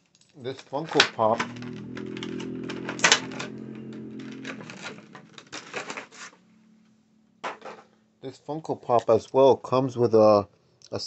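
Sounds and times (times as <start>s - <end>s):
steady low hum: 1.1s - 8.2s.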